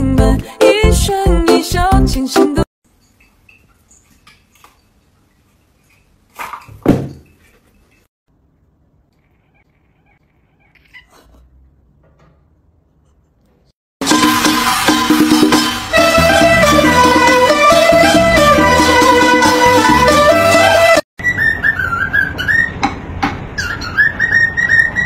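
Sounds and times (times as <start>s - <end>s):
cat crying: 9.2s - 11.4s.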